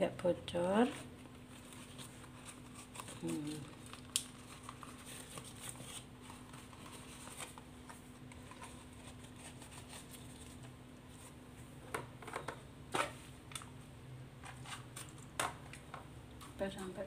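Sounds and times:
banana leaf rustling and crackling: 1.5s - 7.6s.

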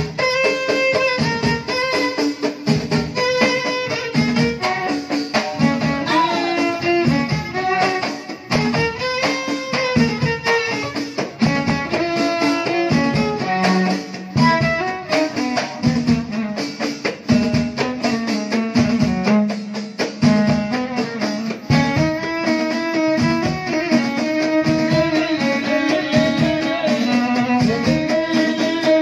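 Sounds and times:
violin melody: 0.0s - 16.8s, 17.8s - 29.0s
frame drums beating: 0.0s - 29.0s
plucked-string line: 5.6s - 16.5s, 20.3s - 29.0s.

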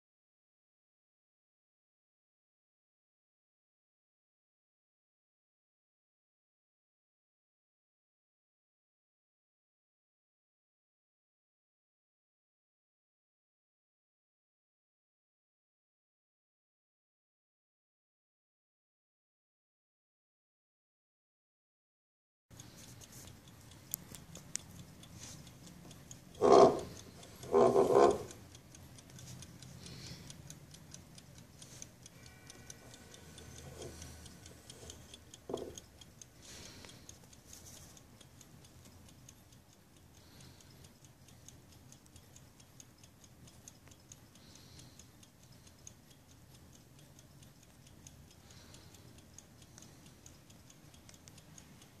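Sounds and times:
clock ticking: 22.5s - 52.0s.

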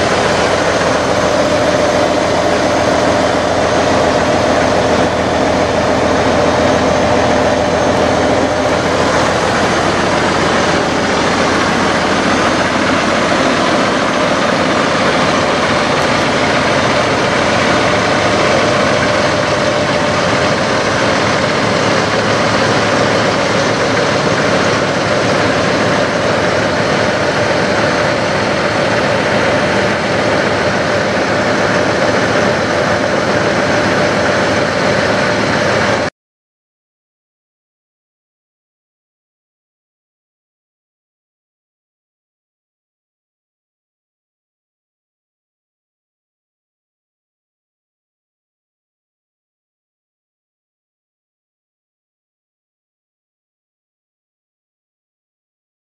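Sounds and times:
truck diesel engine idling: 0.0s - 36.1s.

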